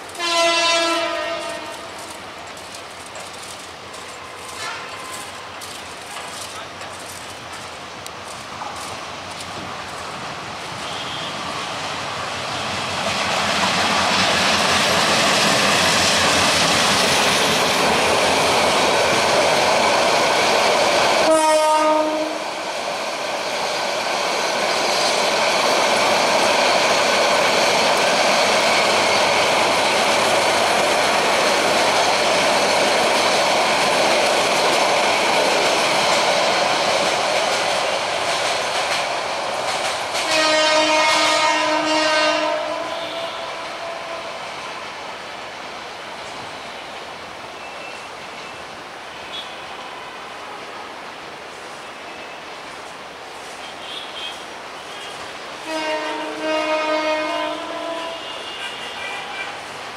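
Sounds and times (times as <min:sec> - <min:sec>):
train wheel and rail noise: 0:00.0 - 0:59.9
train horn: 0:00.1 - 0:02.2, 0:04.4 - 0:05.3, 0:10.8 - 0:11.5, 0:21.2 - 0:22.4, 0:40.2 - 0:44.4, 0:49.1 - 0:50.2, 0:53.6 - 0:59.8.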